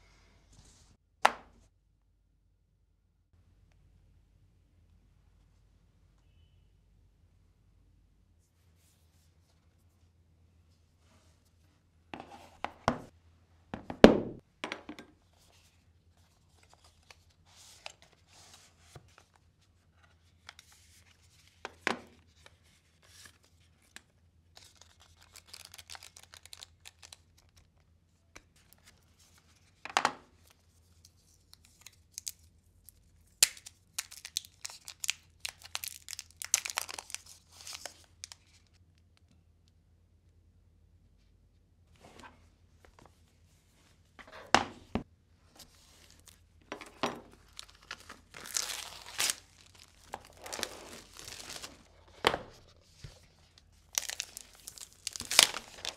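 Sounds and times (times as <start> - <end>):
cardboard and plastic rustling: 44.9 - 55.9.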